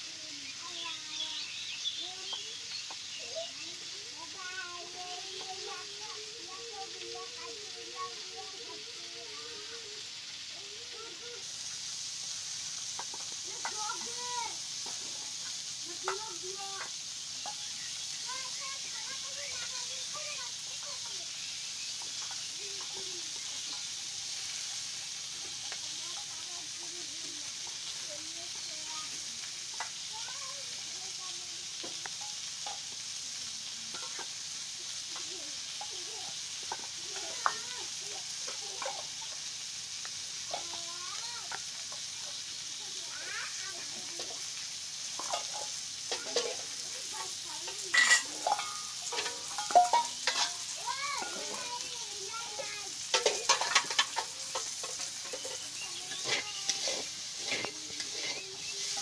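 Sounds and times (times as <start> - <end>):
vegetables sizzling in oil: 0.0 - 59.0
metal spatula scraping a pan: 12.5 - 26.8, 33.9 - 34.4, 44.2 - 59.0.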